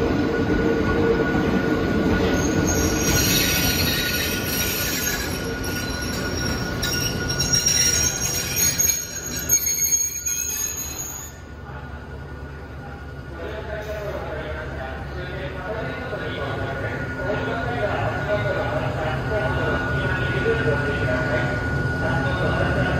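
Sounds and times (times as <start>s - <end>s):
train wheels squealing: 2.0s - 11.6s.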